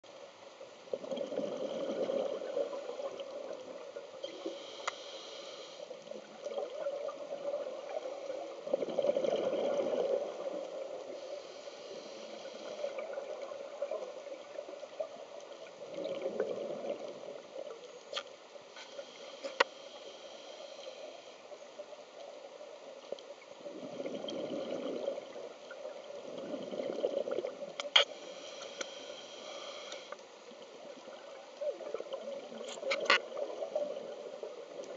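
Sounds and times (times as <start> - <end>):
bubbles gurgling underwater: 1.0 - 3.8, 6.4 - 11.0, 15.8 - 17.4, 23.6 - 27.7.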